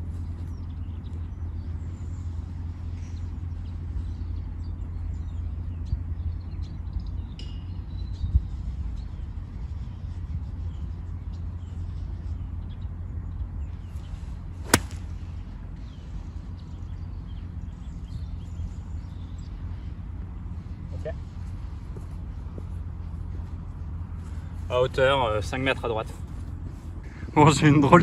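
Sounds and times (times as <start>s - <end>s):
golf club striking ball: 14.6s - 15.4s.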